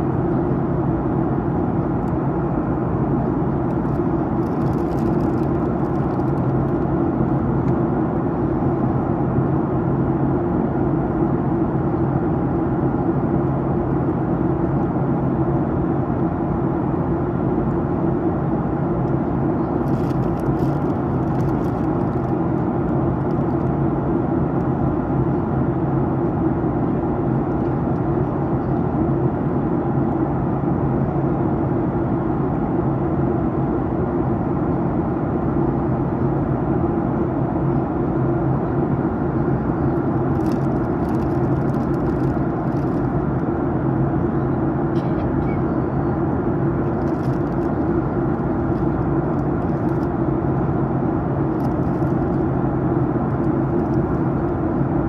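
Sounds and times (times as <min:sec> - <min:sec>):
jet engines humming: 0:00.0 - 0:55.0.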